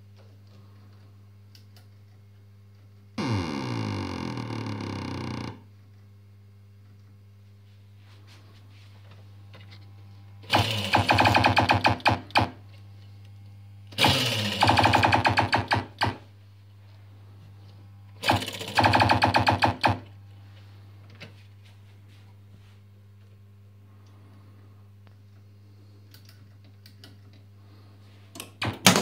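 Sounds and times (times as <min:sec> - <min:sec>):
low electrical hum: 0:00.0 - 0:29.0
pinball machine buzzing pulses: 0:03.2 - 0:05.7, 0:10.4 - 0:12.6, 0:13.8 - 0:16.3, 0:18.0 - 0:20.1.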